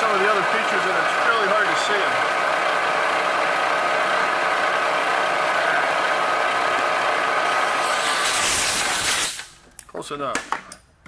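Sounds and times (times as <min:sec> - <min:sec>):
milling machine whining: 0:00.0 - 0:08.1
hiss: 0:07.7 - 0:09.5.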